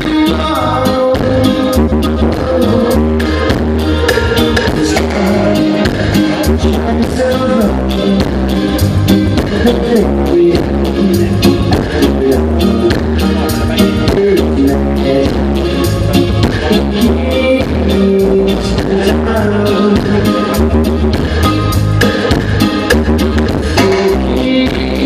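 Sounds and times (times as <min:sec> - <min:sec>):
loud music with heavy bass: 0:00.0 - 0:25.0.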